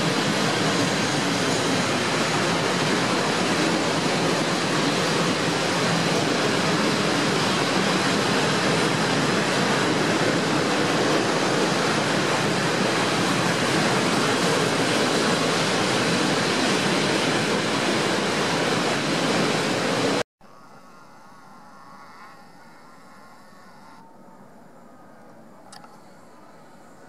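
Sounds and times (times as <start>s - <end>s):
freight train wheels rumbling: 0.0s - 20.2s.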